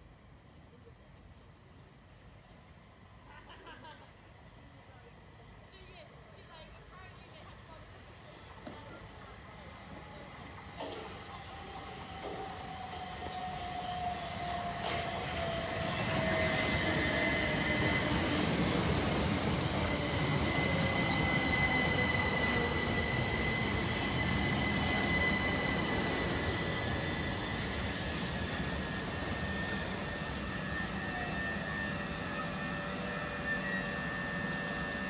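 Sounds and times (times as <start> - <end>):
train wheels rumbling on rail: 5.9 - 35.0
thin high whine: 15.8 - 35.0.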